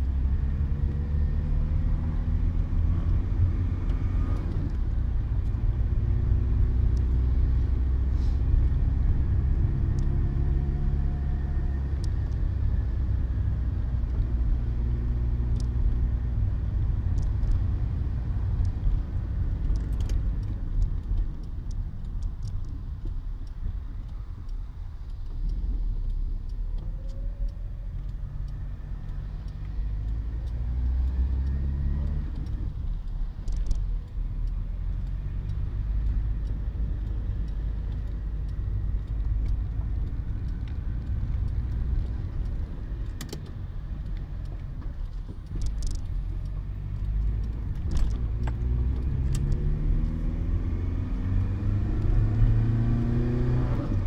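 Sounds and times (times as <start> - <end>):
car engine accelerating: 0.0 - 23.1, 23.9 - 54.0
road noise: 0.0 - 54.0
sharp clicks: 15.0 - 54.0.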